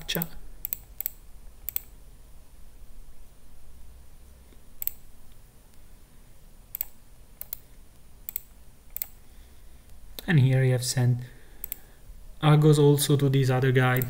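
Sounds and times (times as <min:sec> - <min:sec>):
computer mouse clicking: 0:00.0 - 0:01.9, 0:04.5 - 0:05.0, 0:06.7 - 0:09.2, 0:11.6 - 0:11.8
faint low hum: 0:00.0 - 0:14.0.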